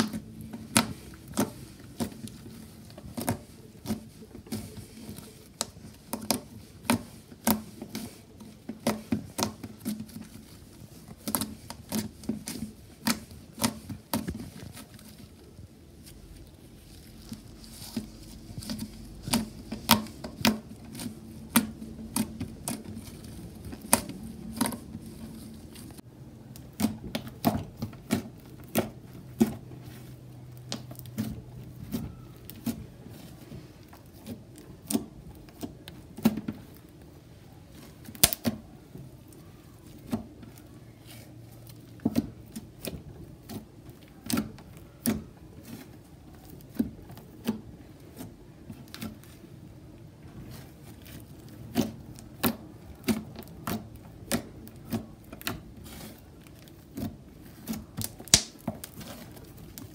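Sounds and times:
slime clicking and popping: 0:57.6 - 0:59.8.

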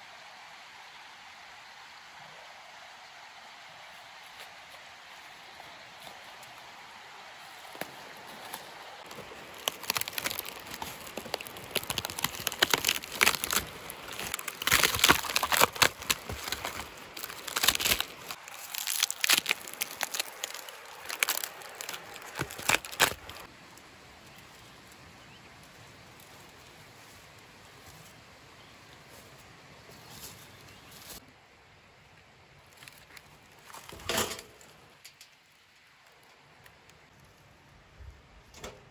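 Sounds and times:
bark tearing and crackling: 0:09.0 - 0:23.5.

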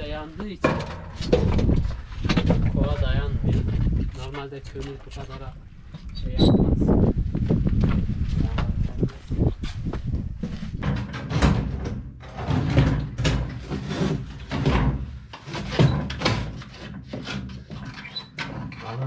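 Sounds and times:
footsteps: 0:06.8 - 0:10.8
door: 0:10.8 - 0:16.6
knocks and clatter at wood stove: 0:10.8 - 0:19.0.

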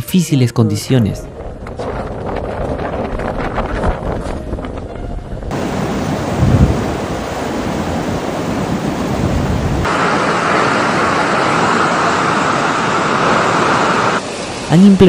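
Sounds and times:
wind thump on microphone: 0:01.3 - 0:07.5
floodwater rushing: 0:05.5 - 0:15.0.

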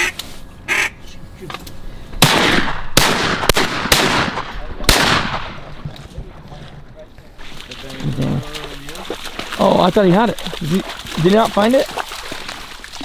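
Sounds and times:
shotgun shots: 0:02.2 - 0:05.7.

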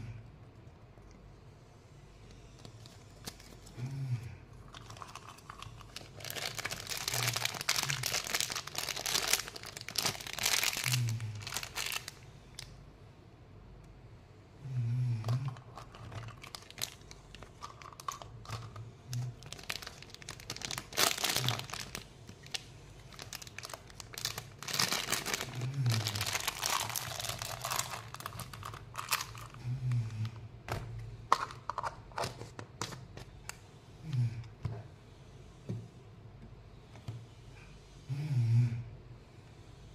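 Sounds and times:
plastic wrappers crinkling: 0:04.7 - 0:12.7, 0:15.4 - 0:30.3.

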